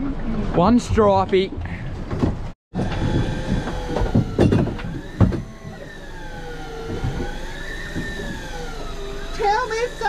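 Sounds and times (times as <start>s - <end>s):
motor whining: 2.8s - 10.0s.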